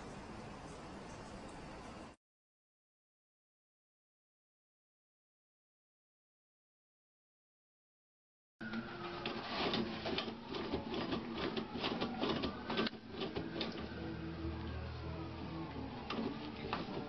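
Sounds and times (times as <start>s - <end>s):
paper rustling: 8.8s - 14.0s, 16.0s - 17.0s
toilet paper roll rattling: 9.0s - 14.0s, 15.9s - 17.0s.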